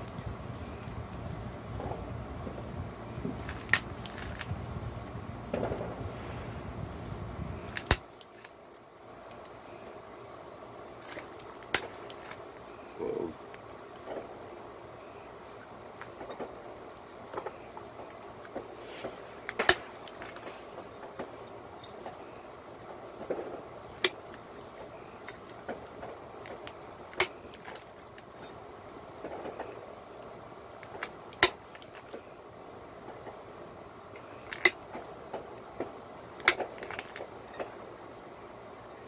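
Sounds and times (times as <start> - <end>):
sharp clicks of stone flaking: 7.7 - 8.6.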